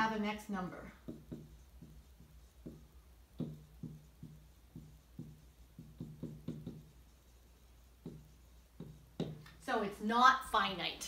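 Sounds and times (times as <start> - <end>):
marker tapping on whiteboard: 1.0 - 7.1, 8.0 - 9.6.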